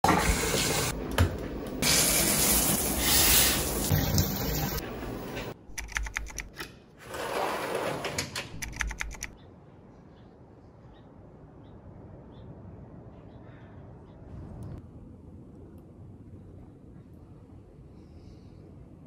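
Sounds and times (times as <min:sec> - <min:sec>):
shower water spraying: 0:01.8 - 0:04.8.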